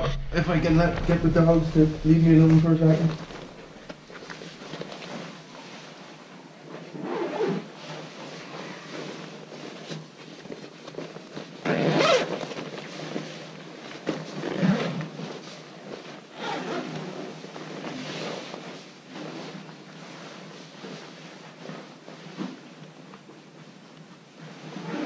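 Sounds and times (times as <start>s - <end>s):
fabric rustling: 0.7s - 25.0s
zipper being pulled closed: 6.9s - 9.4s, 11.6s - 13.2s, 16.3s - 19.7s, 24.6s - 25.0s.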